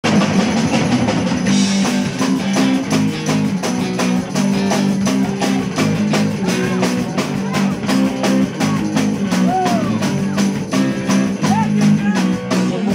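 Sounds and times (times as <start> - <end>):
amplified guitars: 0.0 - 12.9
drum kit beat: 0.0 - 12.9.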